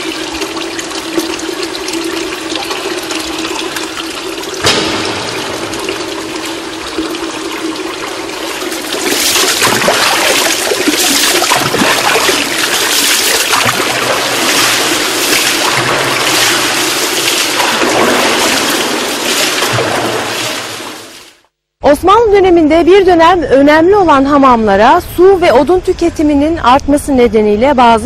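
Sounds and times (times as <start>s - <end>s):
water pouring and splashing: 0.0s - 21.5s.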